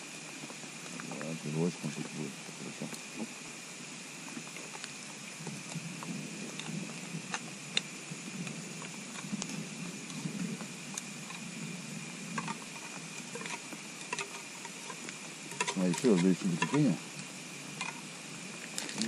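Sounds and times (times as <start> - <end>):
can opener clicking and scraping: 15.6 - 16.9.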